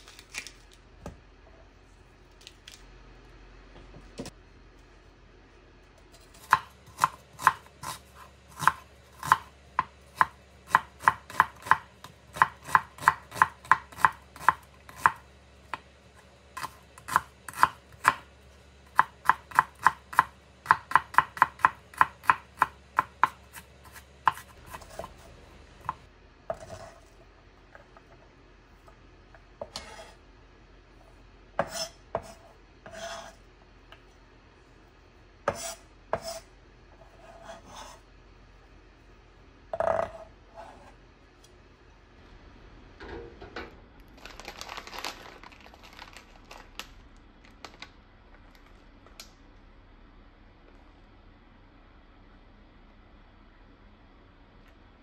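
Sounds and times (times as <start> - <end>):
knife chopping on wooden board: 19.0 - 25.2.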